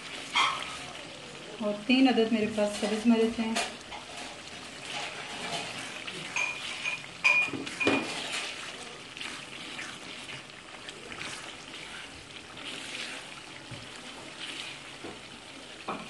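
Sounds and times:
meat sizzling in a pan: 0.0s - 16.0s
spatula clinking against pan: 6.2s - 8.2s.

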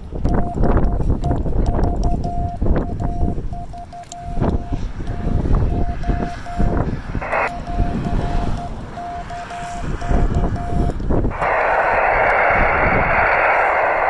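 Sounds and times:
receiver noise hiss: 0.0s - 14.0s
wind buffeting microphone: 0.0s - 14.0s
morse code beeping: 0.2s - 11.0s.

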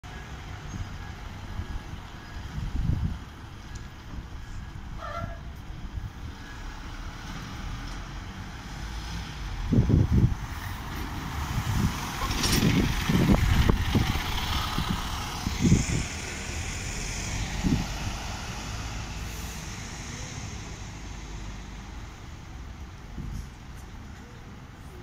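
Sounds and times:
bus engine driving off: 0.0s - 25.0s
wind buffeting microphone: 0.7s - 6.4s, 9.3s - 19.8s.

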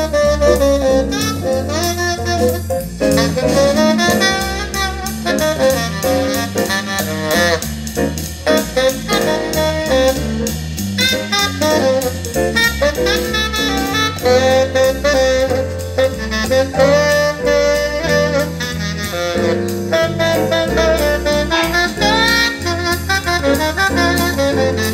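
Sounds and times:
bass line: 0.0s - 24.9s
drums: 0.0s - 24.9s
saxophone melody: 0.0s - 24.9s.

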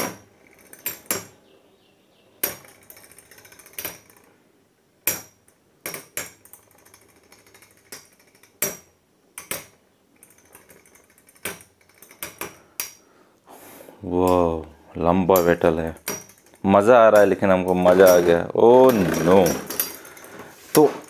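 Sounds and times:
faint steady hum: 0.0s - 21.0s
spinning tops clacking together: 15.4s - 20.8s.

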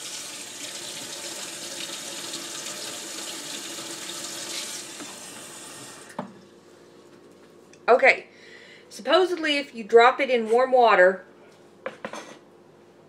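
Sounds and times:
kitchen tap running: 0.0s - 6.2s.

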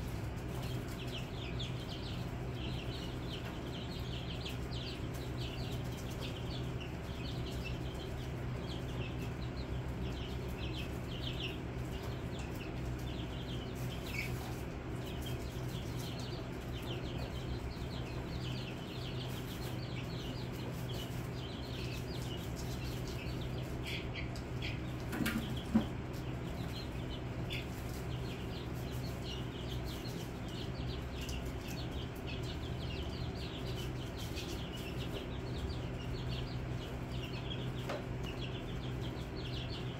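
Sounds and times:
chicks peeping: 0.0s - 39.9s
steady low hum: 0.0s - 39.9s.

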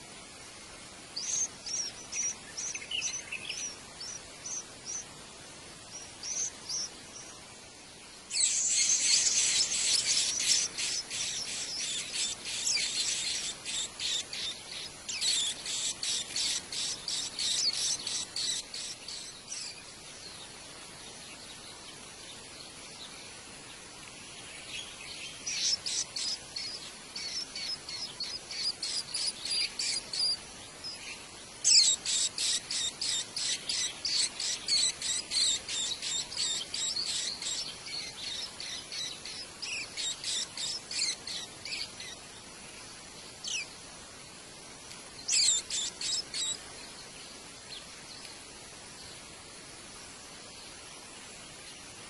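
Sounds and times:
nestlings chirping: 1.2s - 5.1s, 5.9s - 7.3s, 8.3s - 19.8s, 25.4s - 31.0s, 31.6s - 42.2s, 45.3s - 46.6s.

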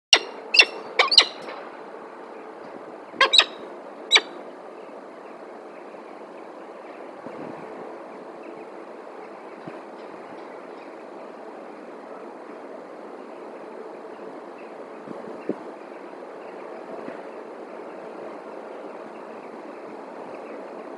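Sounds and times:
falcon calling sharply: 0.1s - 1.4s, 3.2s - 4.4s
distant traffic hum: 0.1s - 20.9s.

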